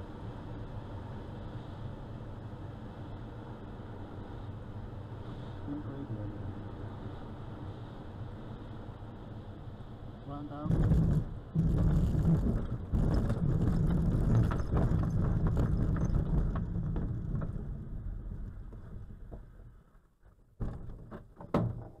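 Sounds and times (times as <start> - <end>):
glider rolling over grass: 10.6 - 21.1.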